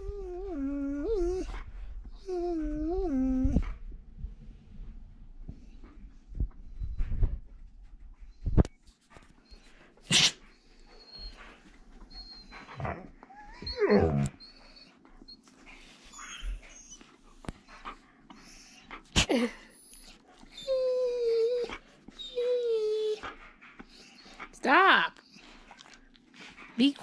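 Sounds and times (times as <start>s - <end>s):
dog whining grumbles: 0.0s - 3.8s, 12.1s - 15.4s, 19.2s - 23.3s.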